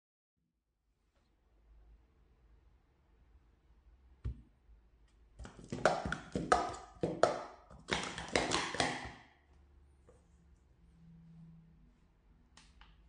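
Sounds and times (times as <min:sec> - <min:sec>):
plastic cups clattering: 0:05.4 - 0:09.3.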